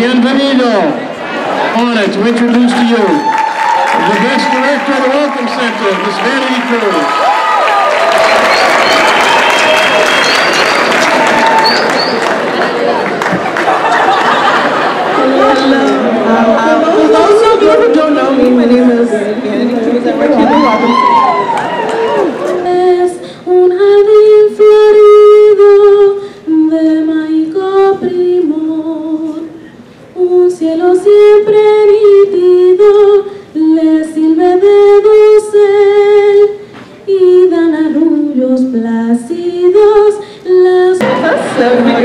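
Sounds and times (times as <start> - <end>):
girl singing: 22.5 - 29.6, 30.2 - 42.0.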